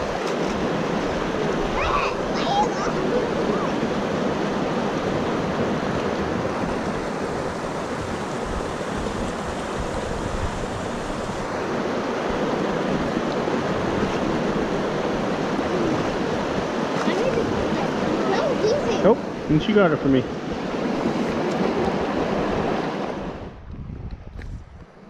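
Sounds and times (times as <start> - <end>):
river flowing over rocks: 0.0 - 19.6.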